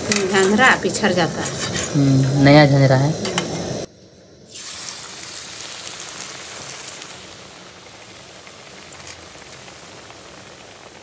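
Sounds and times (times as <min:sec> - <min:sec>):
bread deep-frying in hot oil: 0:04.5 - 0:11.0.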